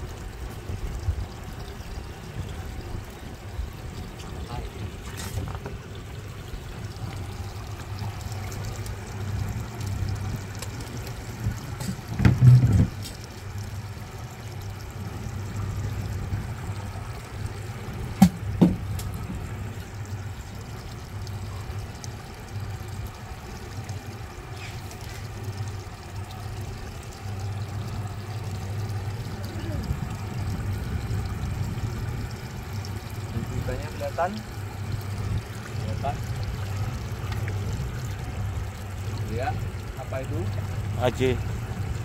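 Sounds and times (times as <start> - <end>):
outboard motor idling: 0.0 - 42.0
water sloshing against hull: 0.0 - 42.0
loud low thump: 18.2 - 19.0
sharp knocks: 18.2 - 19.1.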